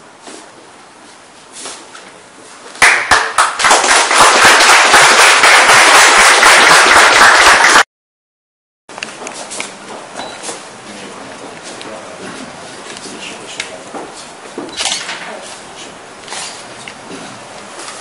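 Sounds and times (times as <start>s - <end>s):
audience applauding: 2.8s - 7.9s.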